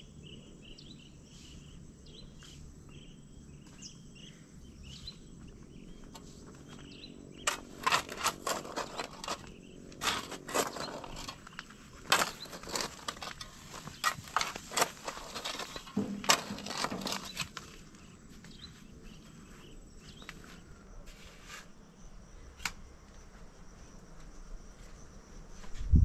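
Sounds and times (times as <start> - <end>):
hoe and shovel digging stony soil: 6.2 - 18.7.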